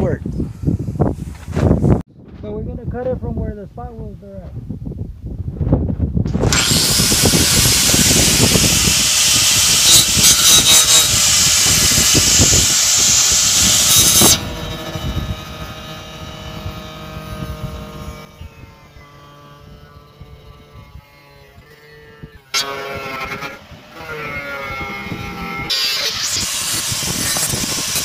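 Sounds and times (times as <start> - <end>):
angle grinder cutting steel: 6.4 - 28.0.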